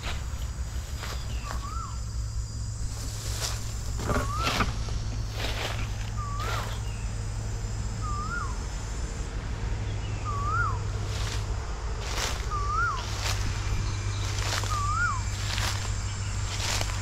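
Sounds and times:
footsteps on dry leaves: 0.0s - 2.1s, 2.7s - 7.0s, 11.0s - 17.0s
bird whistled call: 1.2s - 2.0s, 4.1s - 4.8s, 5.9s - 7.1s, 8.0s - 8.6s, 10.0s - 11.3s, 12.2s - 15.7s.

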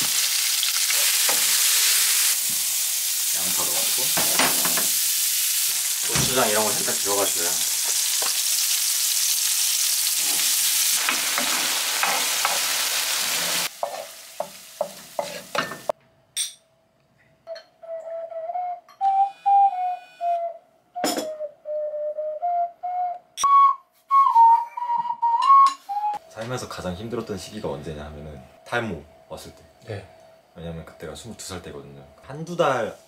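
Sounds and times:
stir-fry sizzling in a pan: 0.0s - 16.0s
small wind instrument tune: 17.5s - 26.3s.

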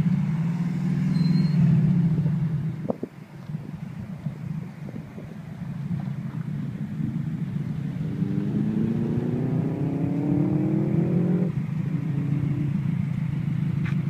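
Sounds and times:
rally car engine revving: 6.8s - 14.0s.

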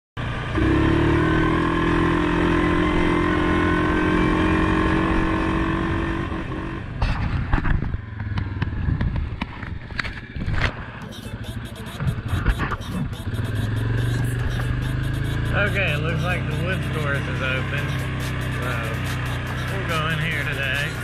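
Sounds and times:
engine humming: 10.7s - 21.0s
fabric brushing microphone: 11.0s - 21.0s.

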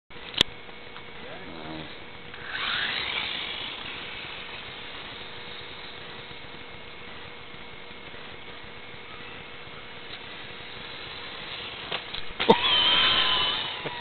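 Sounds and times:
toy motorcycle motor whirring: 1.6s - 6.4s, 10.0s - 14.0s.

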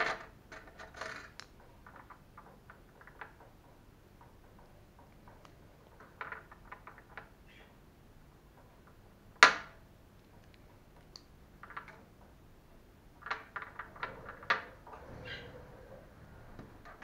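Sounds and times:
small plastic parts clicking: 0.0s - 7.4s, 8.6s - 12.3s.

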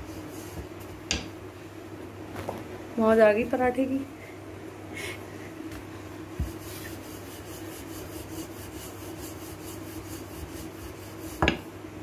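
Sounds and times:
rolling pin rubbing dough: 6.3s - 11.8s
thump on rolling board: 11.4s - 11.6s.

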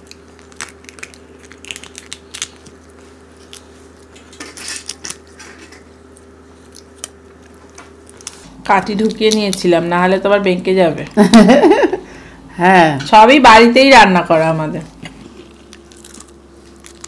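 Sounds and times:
prawn shells cracking: 0.0s - 9.9s, 15.2s - 17.0s
low steady hum: 0.0s - 17.0s.

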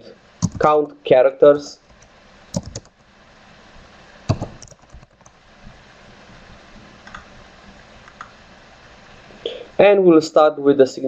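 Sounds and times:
keyboard typing: 0.4s - 0.7s, 1.9s - 3.0s, 4.3s - 5.4s, 7.0s - 7.3s.

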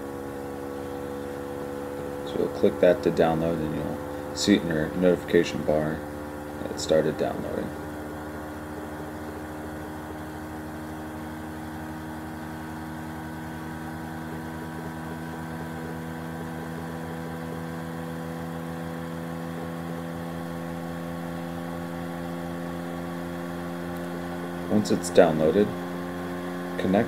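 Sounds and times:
low mechanical hum: 0.0s - 27.0s.

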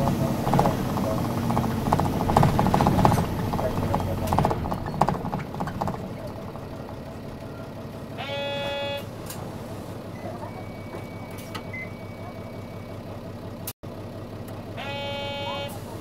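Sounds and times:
diesel bus engine humming: 0.0s - 16.0s
short buzzer tone: 8.2s - 9.1s, 14.8s - 15.9s.

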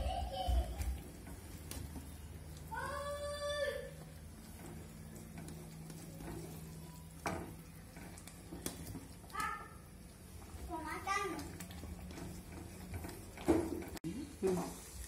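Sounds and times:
spoon stirring and scraping pan: 3.9s - 15.0s.

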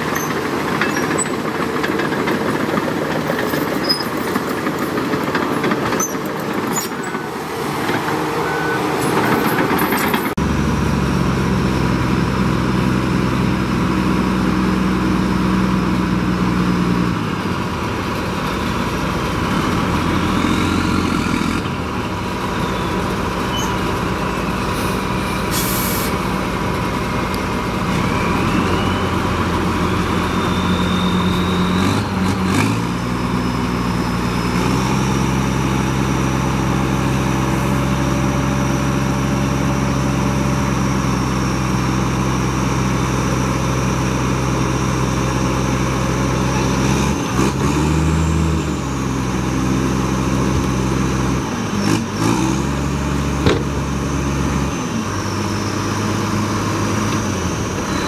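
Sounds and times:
heavy diesel engine running: 0.0s - 58.0s
short hiss: 24.8s - 26.2s.

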